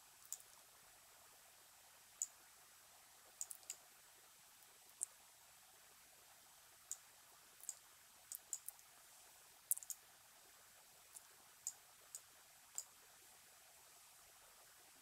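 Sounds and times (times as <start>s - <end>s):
faint computer mouse clicks: 0.2s - 0.6s, 3.4s - 3.8s, 7.6s - 8.9s, 9.7s - 10.0s, 11.1s - 13.0s.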